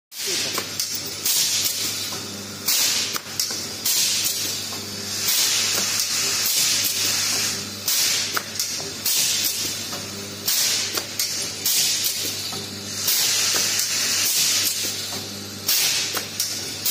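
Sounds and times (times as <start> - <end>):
compressed air hissing: 5.1 - 8.3, 12.9 - 14.9.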